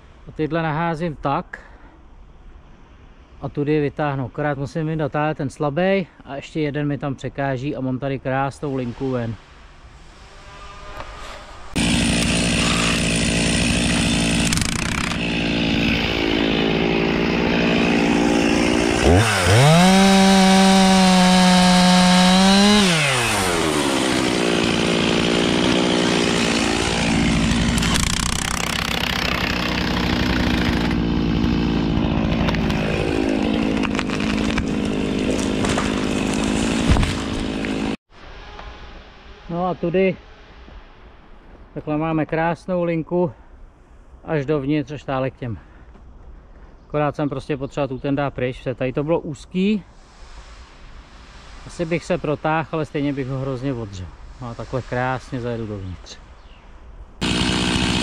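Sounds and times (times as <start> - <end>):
chainsaw running and revving: 11.8 - 38.0, 57.2 - 58.0.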